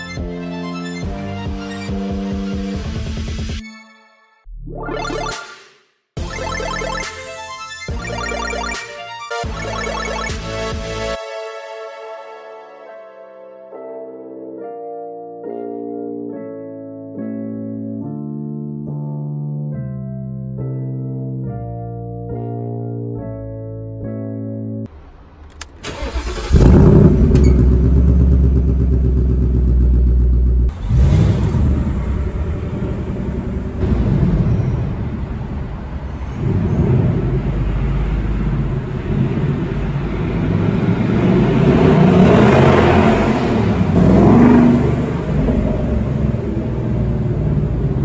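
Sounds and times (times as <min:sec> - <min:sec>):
car engine starting and revving: 0:25.0 - 0:48.0.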